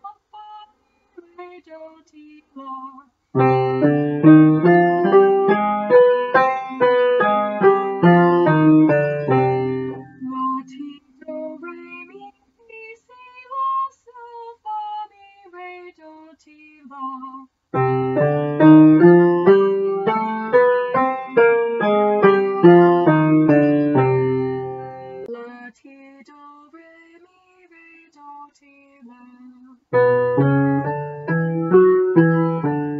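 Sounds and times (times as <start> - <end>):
woman singing unaccompanied: 0.0 - 32.9
piano playing chords: 3.4 - 10.2, 17.8 - 25.3, 30.0 - 32.9.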